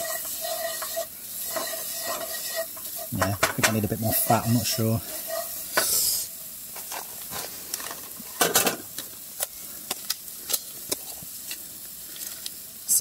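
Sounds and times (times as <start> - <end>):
wooden spoon scraping a pan: 0.0 - 8.6
roux sizzling in a frying pan: 0.0 - 13.0.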